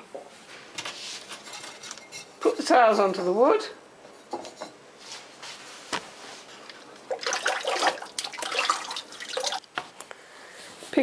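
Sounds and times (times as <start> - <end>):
glaze sloshing and splashing: 6.5 - 9.7.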